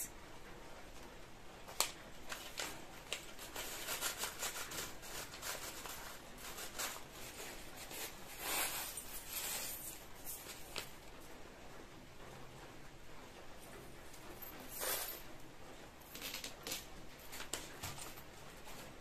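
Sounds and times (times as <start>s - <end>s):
plastic bag rustling: 1.8s - 11.1s.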